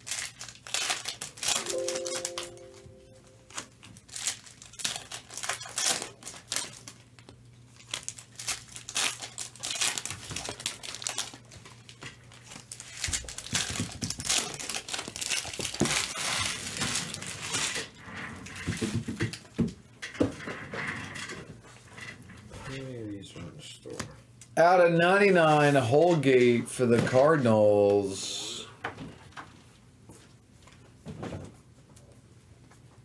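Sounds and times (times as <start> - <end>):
foil wrappers crinkling: 0.0 - 2.6, 3.3 - 18.9.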